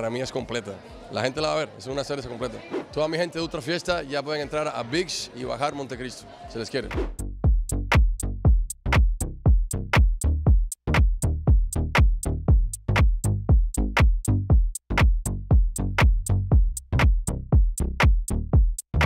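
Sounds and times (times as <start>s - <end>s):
electronic music with drum machine: 6.9s - 19.0s.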